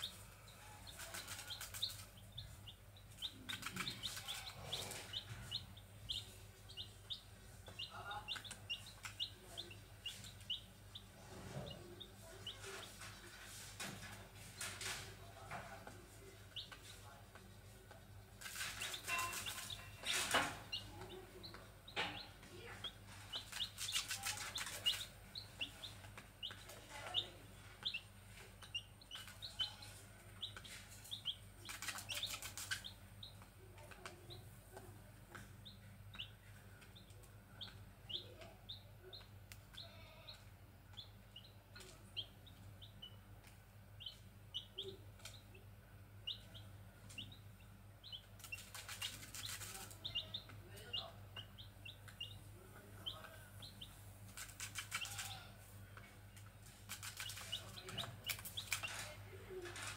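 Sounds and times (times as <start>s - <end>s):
chicks peeping: 0.0s - 59.9s
scratchy rustling: 48.4s - 50.0s.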